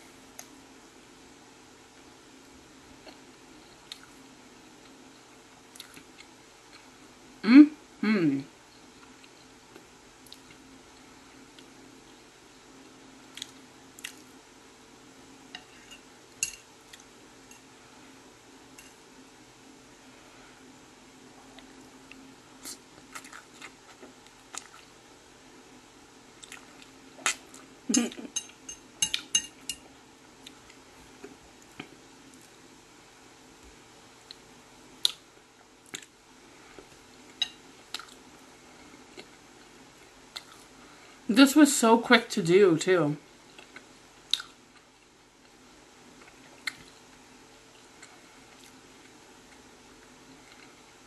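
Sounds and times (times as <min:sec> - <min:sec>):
fork clinking on a plate: 0:28.0 - 0:29.8.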